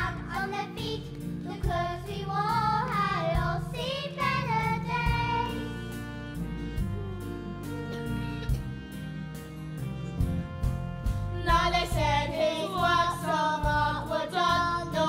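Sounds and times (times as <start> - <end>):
children singing together: 0.0 - 5.8, 11.4 - 15.0
instrumental music: 0.0 - 15.0.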